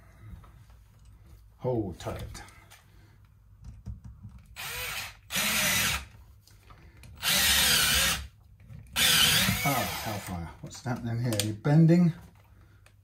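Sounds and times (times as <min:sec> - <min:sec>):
cordless drill running: 0:04.6 - 0:06.1, 0:07.2 - 0:08.3, 0:09.0 - 0:10.3.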